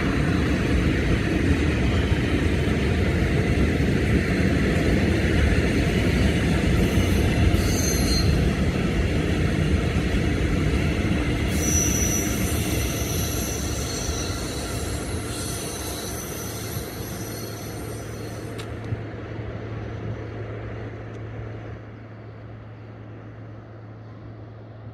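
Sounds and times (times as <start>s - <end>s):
freight train wagons rumbling: 0.0s - 24.9s
high-pitched wheel squealing: 6.8s - 8.5s, 11.5s - 18.6s.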